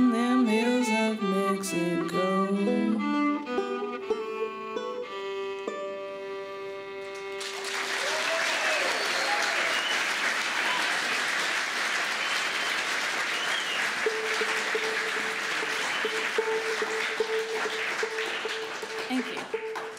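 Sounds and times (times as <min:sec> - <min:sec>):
audience applauding: 0:07.0 - 0:19.9.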